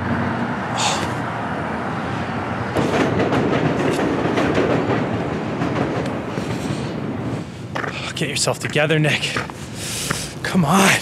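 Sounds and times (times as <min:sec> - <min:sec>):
train wheels clattering: 0:02.7 - 0:10.3.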